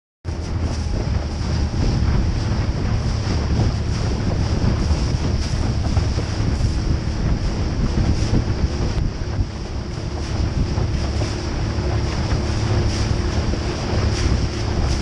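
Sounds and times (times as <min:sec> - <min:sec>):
low engine hum: 0:00.3 - 0:15.0
rushing water: 0:00.3 - 0:15.0
wind buffeting microphone: 0:00.3 - 0:15.0.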